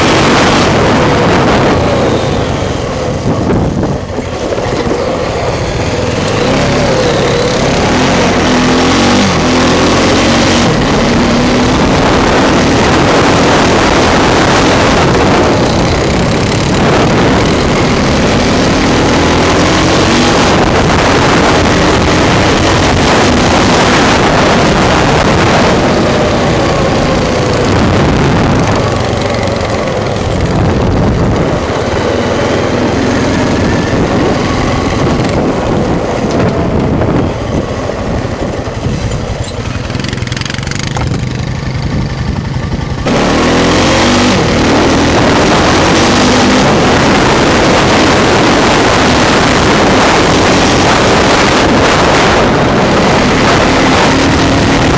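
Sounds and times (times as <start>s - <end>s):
atv engine revving: 0.0s - 54.9s
wind noise on microphone: 0.0s - 54.9s.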